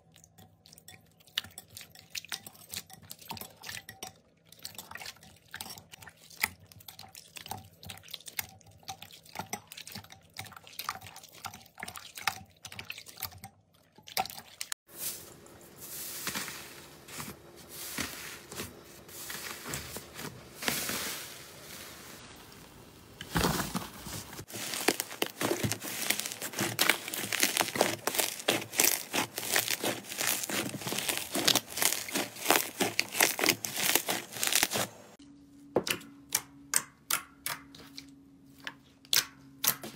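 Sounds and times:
slime squelching in water: 0.0s - 14.8s, 24.4s - 35.1s
soft slime squishing: 24.1s - 35.2s
slime crackling and popping: 24.4s - 34.9s.

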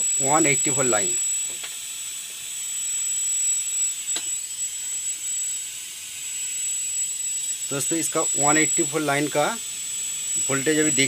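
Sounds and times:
high-pitched whine: 0.0s - 11.0s
high-voltage hiss: 7.4s - 11.0s.

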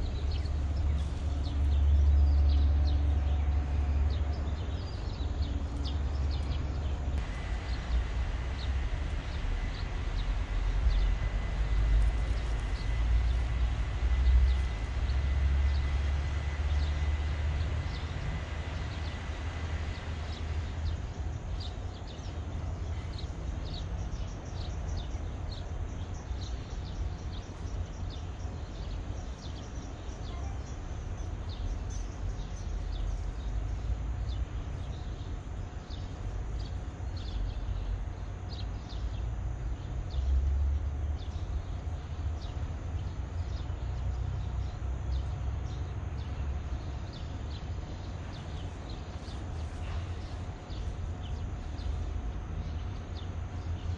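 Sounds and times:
small birds chirping: 0.0s - 53.9s
traffic rumble overhead: 0.0s - 53.9s.

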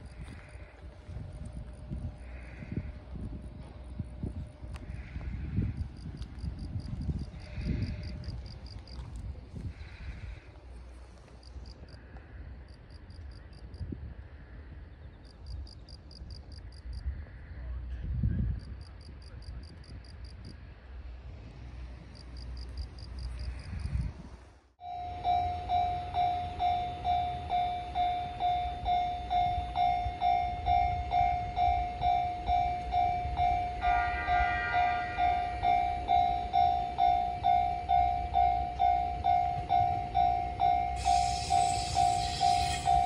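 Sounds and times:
wind noise: 0.0s - 24.6s, 26.6s - 43.0s
crossing warning bell ringing: 6.0s - 9.0s, 24.8s - 43.0s
insects chirping: 25.0s - 43.0s.

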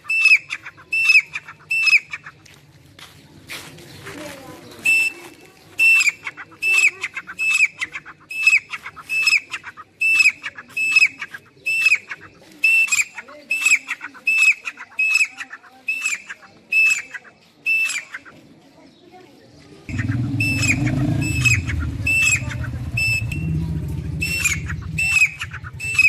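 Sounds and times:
francolin calling: 19.9s - 26.0s.

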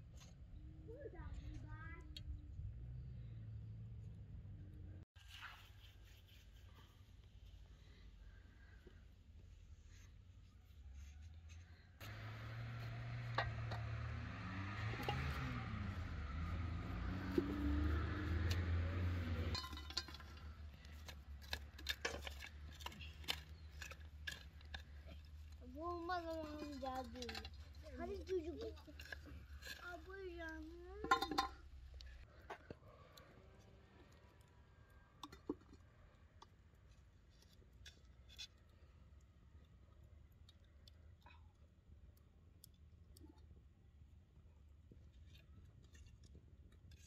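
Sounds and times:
metal lid clinking on pot: 31.0s - 31.6s.

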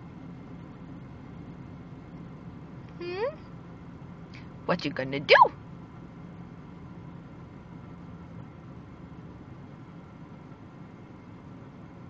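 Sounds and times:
car cabin hum: 4.8s - 12.0s.

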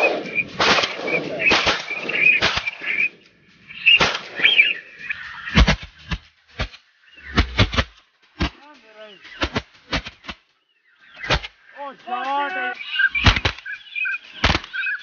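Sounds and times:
shotgun shots: 0.0s - 3.2s, 3.8s - 4.8s, 11.2s - 11.6s, 13.2s - 13.7s
high wavering bird whistles: 0.0s - 5.6s, 12.6s - 15.0s.

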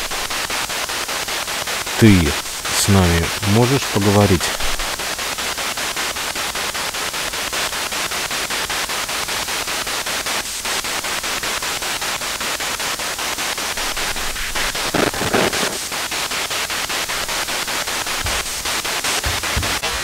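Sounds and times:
pulsing radio static hiss: 0.0s - 6.4s, 12.8s - 20.0s.

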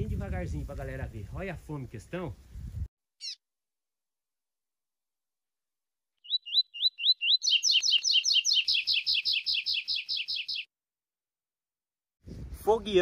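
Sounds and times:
bird singing whistles: 6.2s - 10.7s.

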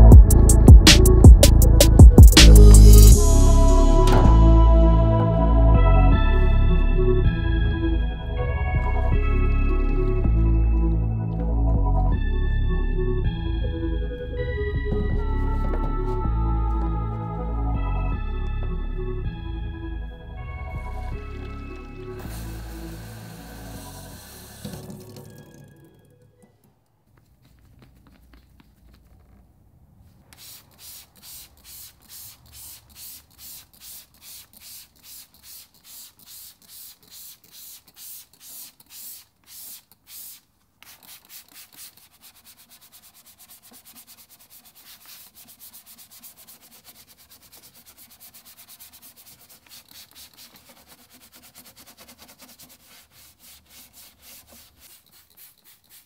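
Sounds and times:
trigger sprayer spraying: 22.1s - 25.6s, 30.3s - 41.9s
brush scrubbing plastic: 22.2s - 25.6s, 27.1s - 29.5s, 30.1s - 56.0s.

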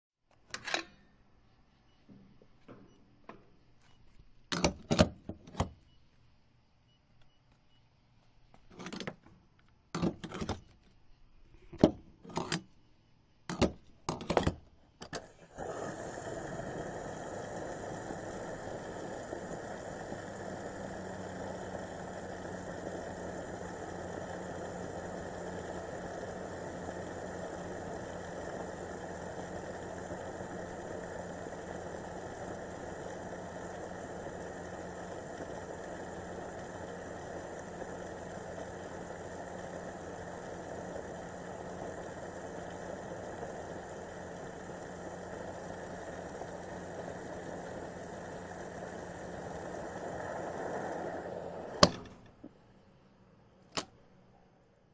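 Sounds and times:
fuel rushing through nozzle: 15.2s - 52.2s
low pump hum: 15.2s - 53.0s.

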